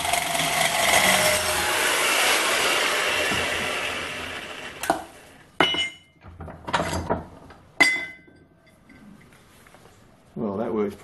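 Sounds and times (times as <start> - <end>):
metal clanks ringing: 5.6 - 6.1, 7.8 - 9.1.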